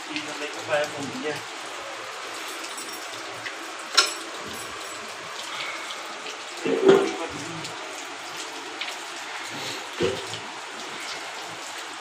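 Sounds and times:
water hissing: 8.6s - 12.0s.

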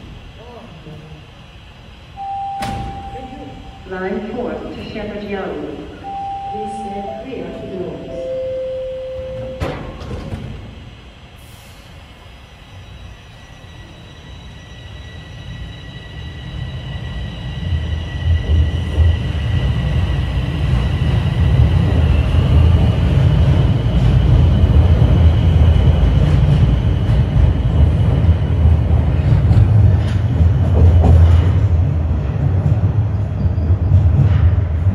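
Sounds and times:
train wheels rumbling on rail: 9.2s - 34.9s.

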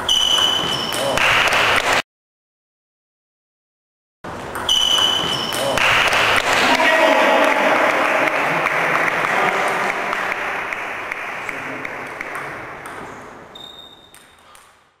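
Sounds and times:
audience applauding: 5.8s - 12.3s.

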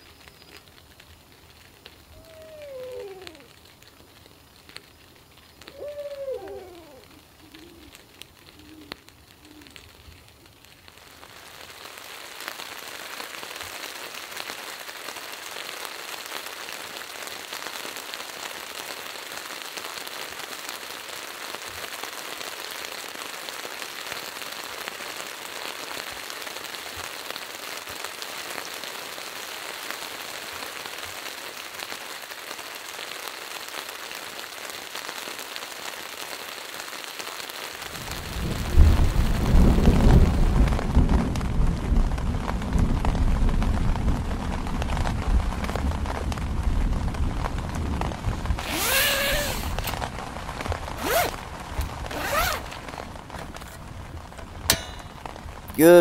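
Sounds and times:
rain falling: 0.0s - 56.0s
owl hooting faintly: 2.1s - 3.6s, 5.6s - 9.8s.

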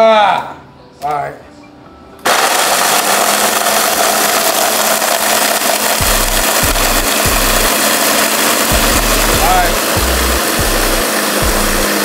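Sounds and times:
blender grinding chips: 2.2s - 12.0s
background music bass line: 6.0s - 8.0s, 8.6s - 12.0s.

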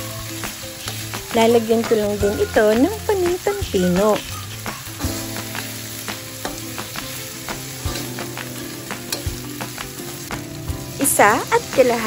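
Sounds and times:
food sizzling in a wok: 0.0s - 12.0s
metal spatula scraping a pan: 6.4s - 10.3s.

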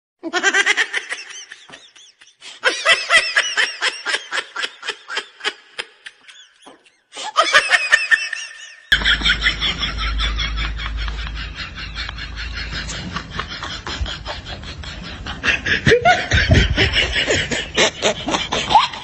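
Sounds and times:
high-pitched laughter: 0.2s - 19.0s
low rumble: 9.0s - 17.1s.

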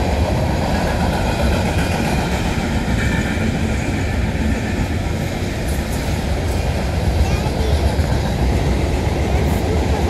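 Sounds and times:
train wheels rumbling on rails: 0.0s - 10.0s.

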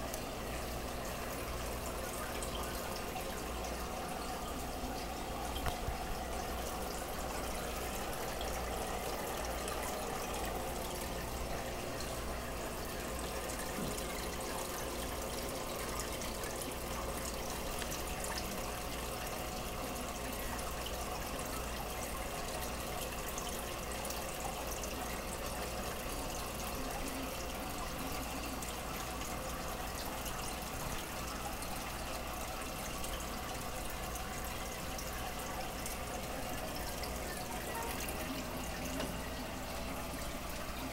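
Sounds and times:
aquarium filter water trickling: 0.0s - 40.9s.

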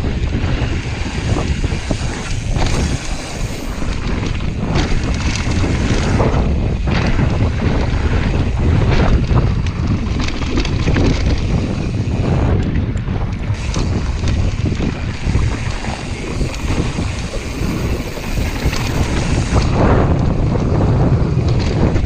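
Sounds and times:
bike clattering over bumps: 0.0s - 22.0s
wind buffeting microphone: 0.0s - 22.0s
tyre noise on dirt: 13.4s - 20.2s.

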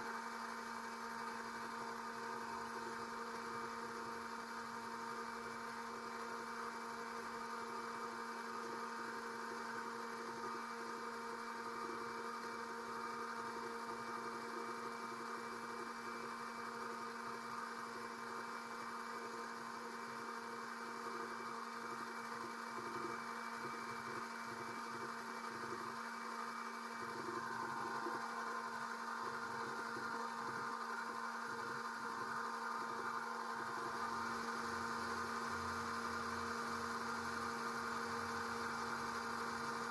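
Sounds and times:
electric pump humming: 20.6s - 39.9s.

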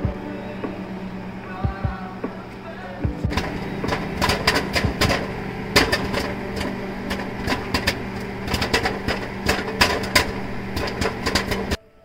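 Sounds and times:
microwave oven hum: 0.0s - 11.8s
popcorn popping: 3.1s - 11.8s.

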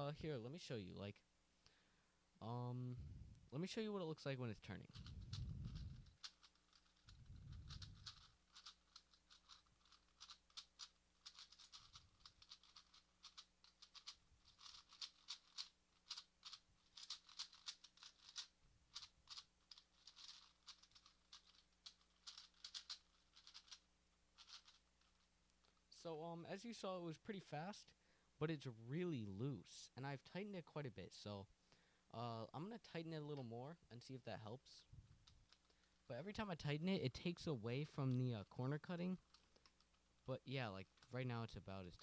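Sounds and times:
plastic puzzle cube clicking: 4.8s - 25.8s, 35.2s - 35.8s, 39.1s - 40.0s, 40.8s - 41.1s.

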